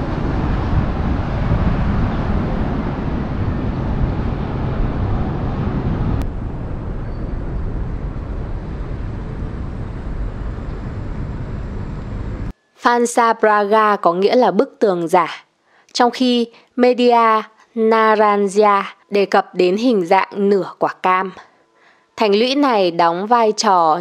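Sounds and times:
low outdoor rumble: 0:00.0 - 0:12.5.

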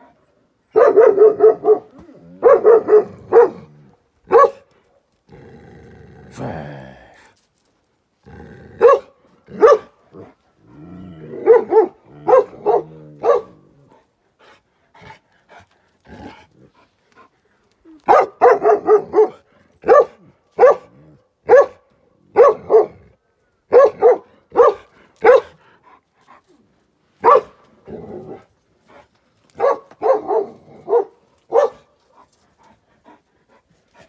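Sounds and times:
large dog barking: 0:00.7 - 0:05.0, 0:08.7 - 0:14.0, 0:18.0 - 0:25.8, 0:27.2 - 0:28.5, 0:29.5 - 0:32.2.

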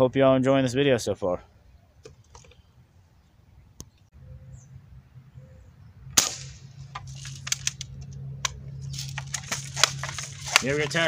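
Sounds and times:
air rifle firing crack: 0:06.2 - 0:06.9
rifle mechanism clicks and rattles: 0:06.9 - 0:11.0.

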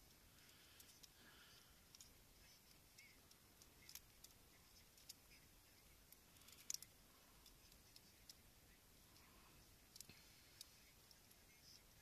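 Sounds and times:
faint clicks of gear handled: 0:01.8 - 0:08.4.

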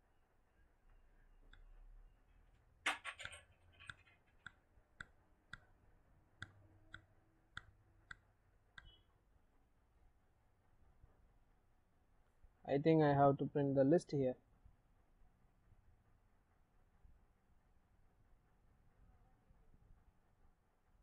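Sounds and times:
computer mouse clicks: 0:03.1 - 0:05.7, 0:08.8 - 0:09.0.

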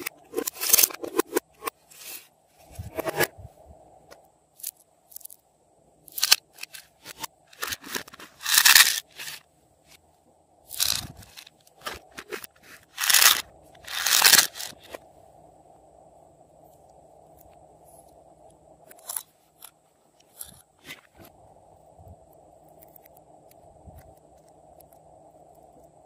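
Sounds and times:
scraping and crinkling: 0:06.2 - 0:09.4, 0:10.7 - 0:15.0.

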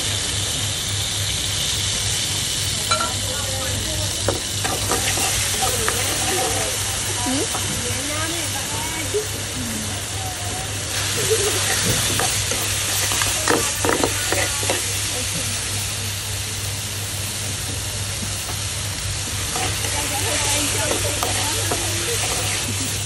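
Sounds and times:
vegetables sizzling in oil: 0:00.0 - 0:23.0
metal ladle clinking on pan: 0:02.9 - 0:03.2.

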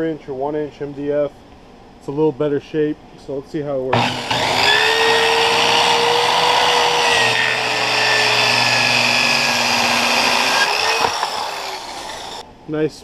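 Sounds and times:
circular saw cutting wood: 0:03.9 - 0:12.4.

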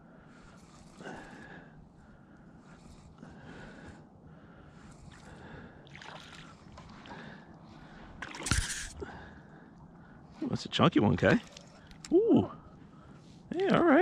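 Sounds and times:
person breathing heavily: 0:00.1 - 0:05.9
fish splashing at water surface: 0:08.2 - 0:09.0.

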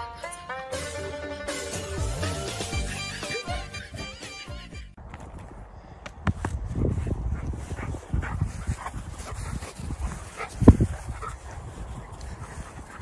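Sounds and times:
low rumbling and handling noise: 0:05.0 - 0:11.7.

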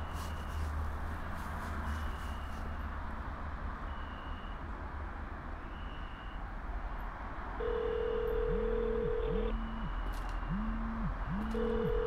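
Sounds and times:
telephone ringback tone: 0:07.6 - 0:12.0
steady low hum: 0:08.0 - 0:12.0
short high beeps: 0:09.1 - 0:12.0.

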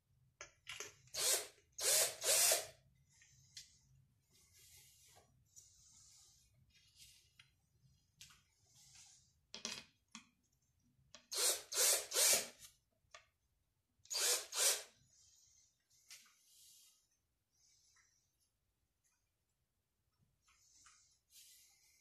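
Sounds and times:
cordless drill pulsing into wood: 0:01.1 - 0:02.8, 0:11.3 - 0:12.6, 0:14.1 - 0:14.9.

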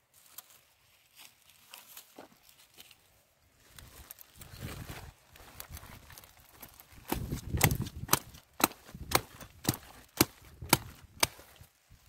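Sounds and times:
blade chopping cabbage stalk: 0:07.0 - 0:11.6.

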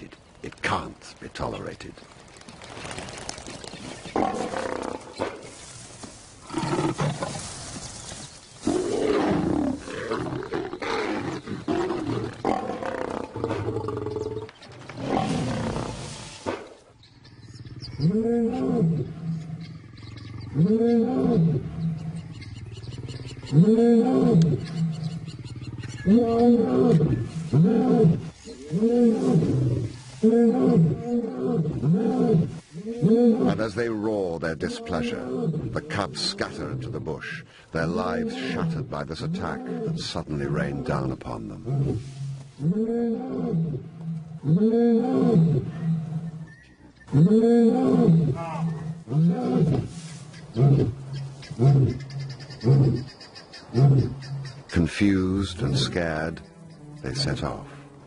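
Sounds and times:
lions snarling and growling: 0:47.1 - 0:56.4.

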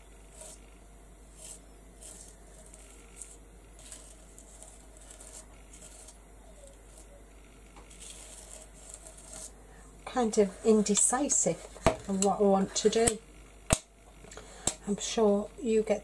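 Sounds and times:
palette knife scraping: 0:00.0 - 0:00.7, 0:01.3 - 0:07.2, 0:07.8 - 0:13.2.

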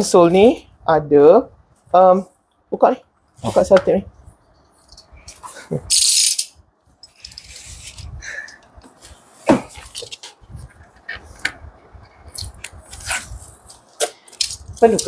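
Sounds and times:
hard parts clicking and clattering: 0:04.8 - 0:11.5, 0:13.8 - 0:15.0.

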